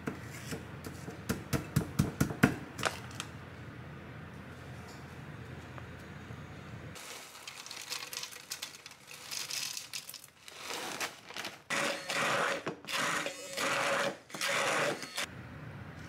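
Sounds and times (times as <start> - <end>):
immersion hand blender pulses: 11.7 - 15.3.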